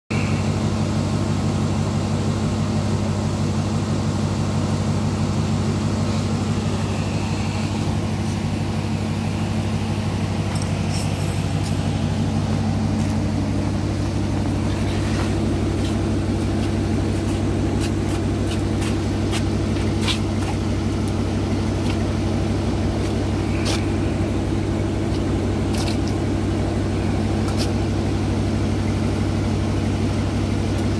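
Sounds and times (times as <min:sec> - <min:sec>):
car engine idling: 0:00.1 - 0:30.9.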